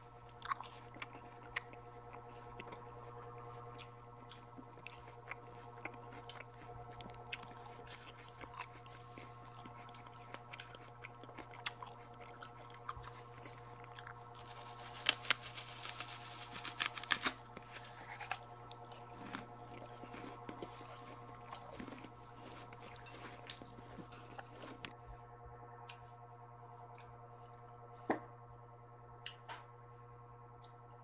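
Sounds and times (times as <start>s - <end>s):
wet chewing and biting: 0.0s - 25.0s
crunching: 0.1s - 25.0s
fruit rind snapping and tearing: 13.8s - 24.9s.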